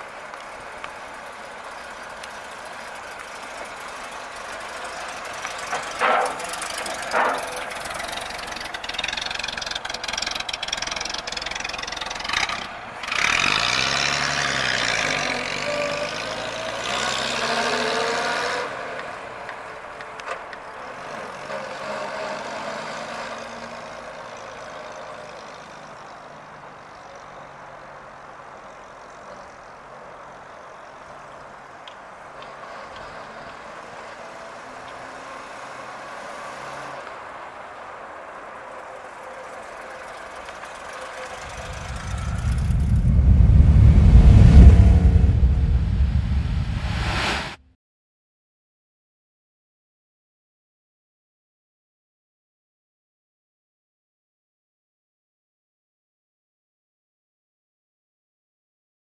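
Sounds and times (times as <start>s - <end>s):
car engine running: 0.0s - 13.3s, 40.1s - 47.1s.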